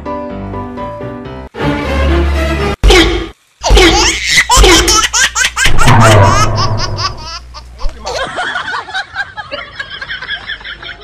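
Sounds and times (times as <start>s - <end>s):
high-pitched laughter: 3.6s - 11.0s.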